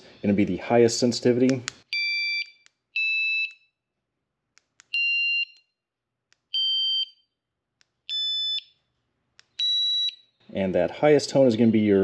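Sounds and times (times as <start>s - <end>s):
short electronic alarm beeps: 8.1s - 8.7s.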